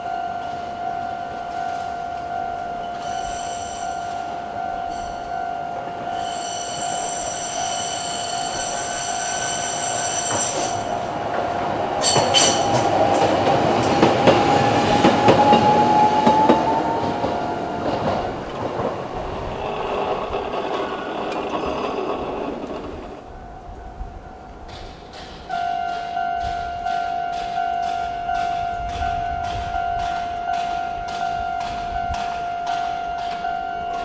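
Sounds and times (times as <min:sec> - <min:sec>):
level crossing alarm ringing: 0:00.0 - 0:11.0, 0:25.5 - 0:34.0
tram wheel squeal: 0:00.0 - 0:11.3, 0:11.9 - 0:34.0
tram rumbling across crossing: 0:00.0 - 0:34.0.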